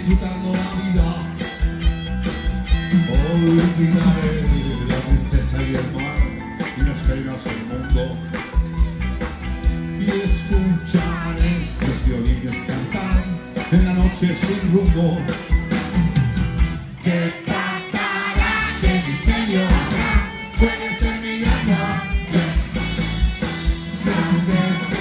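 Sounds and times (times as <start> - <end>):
live band playing: 0.0 - 25.0
person singing: 10.0 - 15.2.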